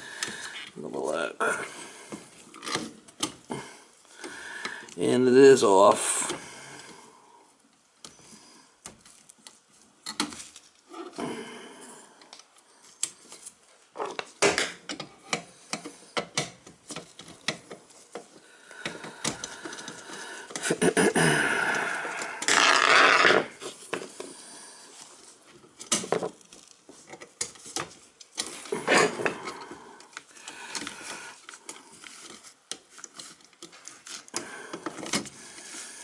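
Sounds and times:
clicks and rattles of wires: 0:08.8 - 0:11.2, 0:12.2 - 0:24.3, 0:25.2 - 0:35.8.

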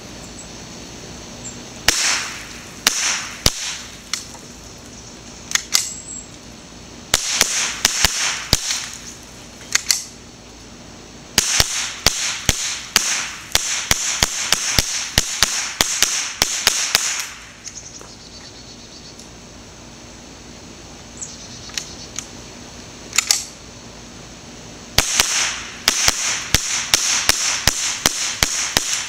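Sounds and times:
rifle shots: 0:01.9 - 0:04.2, 0:07.1 - 0:09.0, 0:11.4 - 0:17.5, 0:25.0 - 0:29.0.

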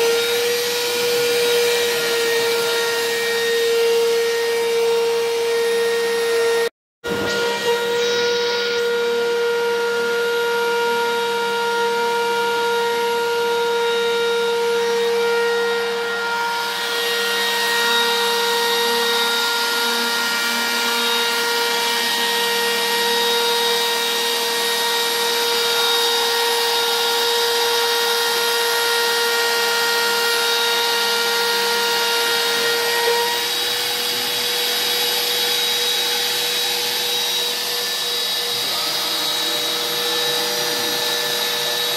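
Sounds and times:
router spindle whining: 0:00.0 - 0:41.9
router bit cutting wood hiss: 0:14.8 - 0:41.9.

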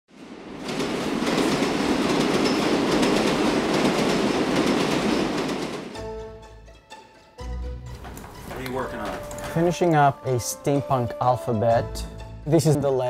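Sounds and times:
subway train rumbling: 0:00.1 - 0:06.1
wheels clattering over rail joints: 0:00.6 - 0:06.0.

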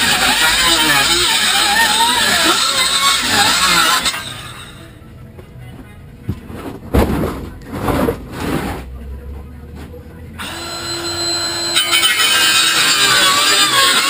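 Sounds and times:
hollow knocks and thumps: 0:05.4 - 0:08.9.

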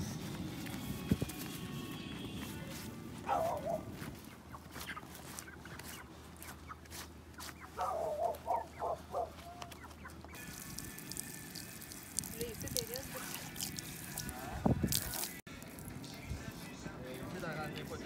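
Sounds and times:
chickens clucking: 0:03.3 - 0:10.4.

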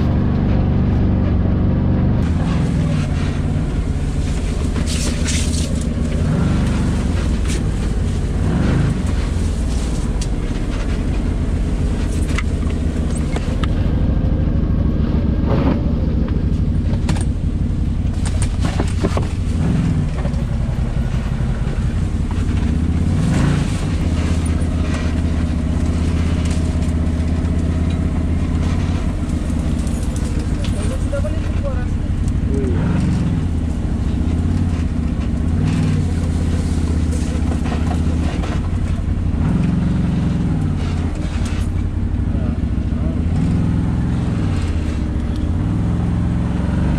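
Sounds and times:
vehicle engine revving: 0:00.0 - 0:46.9
knocks and scrapes: 0:02.2 - 0:14.4, 0:15.4 - 0:46.9.

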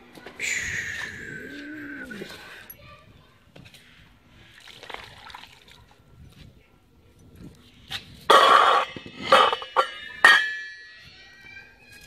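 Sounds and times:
steel lid scraping a clay bowl: 0:08.3 - 0:10.7.

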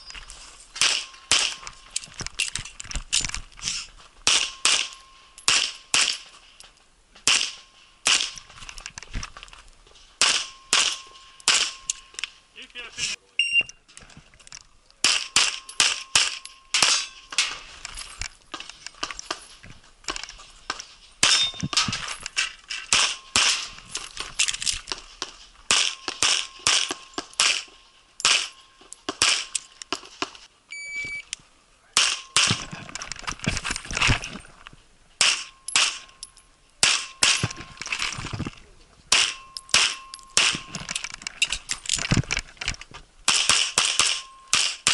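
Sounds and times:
rapid pistol shots: 0:07.3 - 0:08.4, 0:10.2 - 0:11.8, 0:39.1 - 0:40.7, 0:43.3 - 0:44.9
steel target ringing: 0:21.2 - 0:21.6.

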